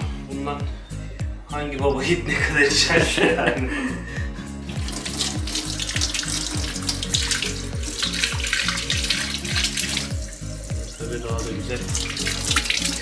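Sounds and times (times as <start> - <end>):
background music with steady beat: 0.0 - 13.0
tap water splashing into sink: 4.7 - 13.0.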